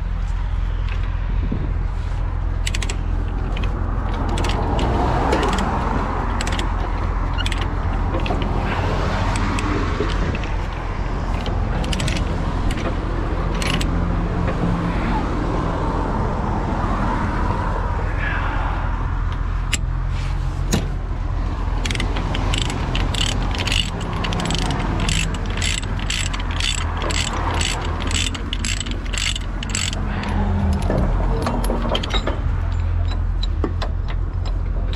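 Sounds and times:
truck engine droning: 0.0s - 34.9s
sharp mechanical clicks: 2.5s - 14.0s, 21.7s - 34.9s.

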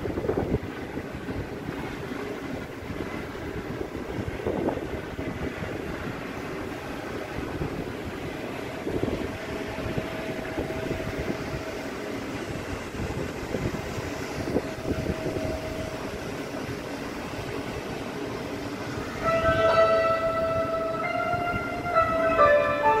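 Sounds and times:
rumbling wind: 0.0s - 23.0s
music: 19.2s - 23.0s.

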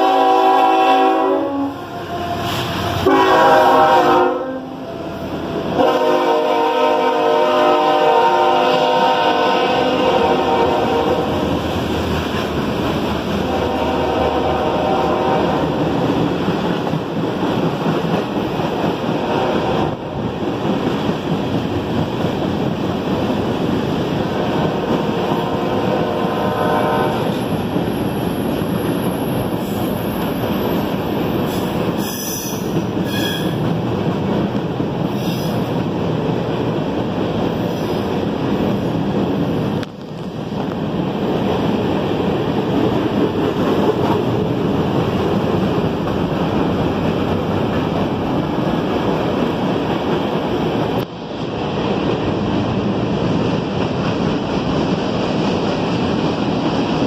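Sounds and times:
steel wheels rumbling on rail: 0.0s - 57.0s
train wheels squealing: 27.9s - 33.7s, 35.1s - 35.7s.

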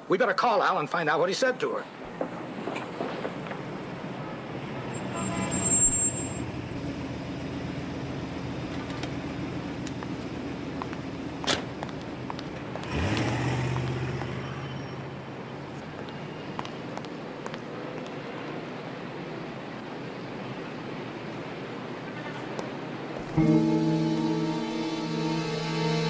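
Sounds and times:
car squeal: 4.9s - 6.6s, 14.3s - 15.3s
car engine revving: 6.4s - 15.5s.

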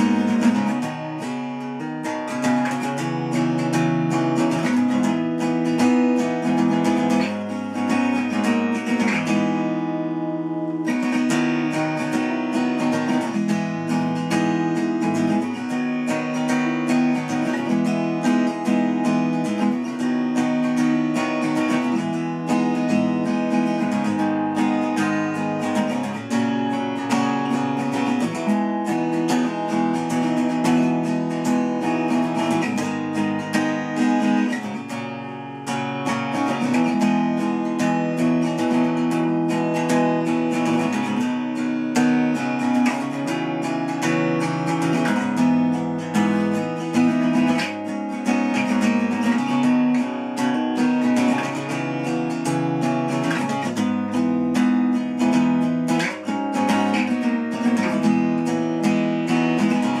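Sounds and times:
acoustic guitar chords: 0.0s - 60.0s.

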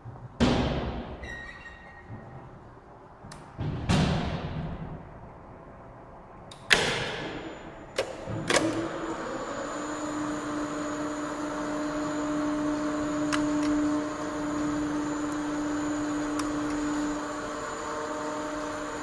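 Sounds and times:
elevator motor humming: 7.0s - 19.0s
contactors clicking: 7.9s - 17.9s.

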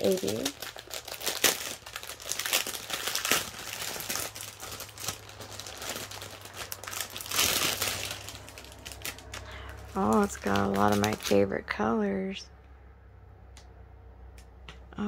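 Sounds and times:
plastic packaging crinkling: 0.0s - 11.8s.

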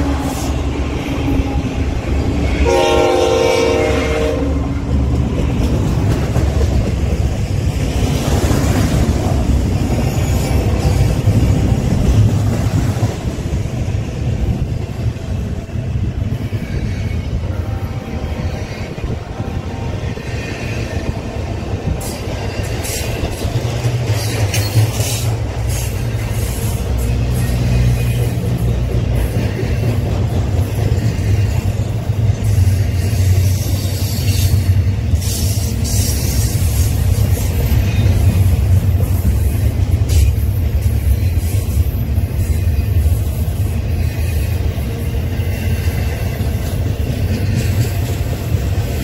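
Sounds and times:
freight train rumbling past: 0.0s - 49.0s
locomotive air horn: 2.5s - 4.8s, 17.4s - 20.2s
train wheels clacking: 4.9s - 17.5s, 20.2s - 49.0s.

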